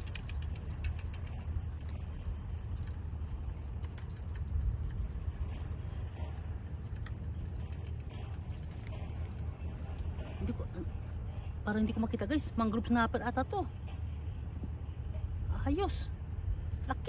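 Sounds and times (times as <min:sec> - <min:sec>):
metallic jingling and clicking: 0:00.0 - 0:11.6
low rumble: 0:00.0 - 0:11.8.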